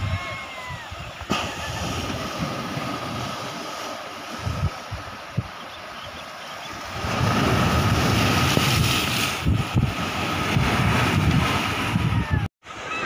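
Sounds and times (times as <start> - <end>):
wind buffeting microphone: 4.2 - 5.6, 6.7 - 12.5
surf breaking over rocks: 6.8 - 12.4.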